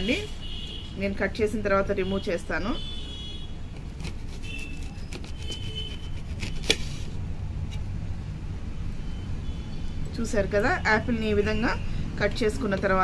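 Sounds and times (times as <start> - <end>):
knife slicing apple: 3.7 - 7.9.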